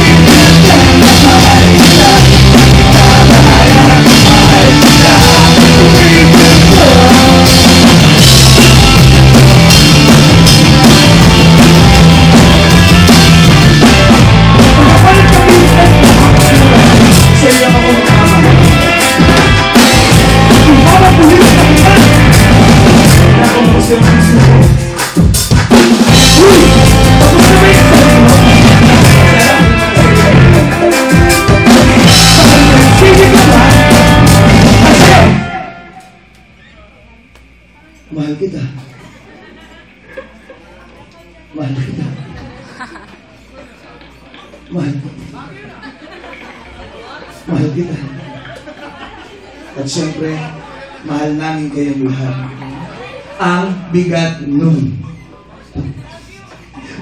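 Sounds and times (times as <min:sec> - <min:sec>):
drum kit: 0:00.0 - 0:35.8
electric guitar: 0:00.0 - 0:36.5
electric bass: 0:00.0 - 0:36.6.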